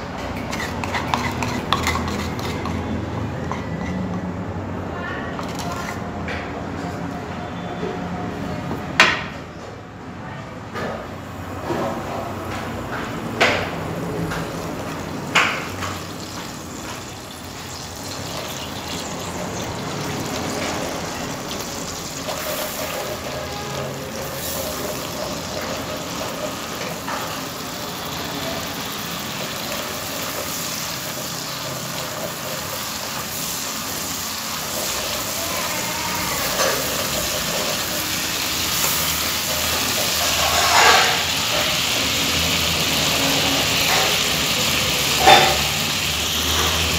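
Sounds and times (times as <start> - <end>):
scraping in a pot: 0.3 - 4.3, 5.4 - 6.1, 38.8 - 41.8
food hissing in a pot: 28.6 - 46.9.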